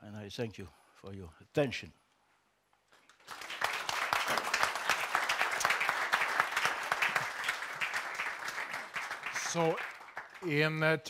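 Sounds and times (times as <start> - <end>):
audience applause: 3.1 - 10.9.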